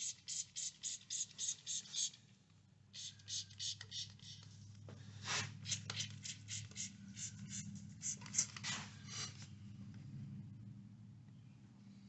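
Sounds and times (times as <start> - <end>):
spray bottle squirting: 0.0 - 2.2, 3.0 - 4.5, 5.6 - 7.3
faint low hum: 6.2 - 12.0.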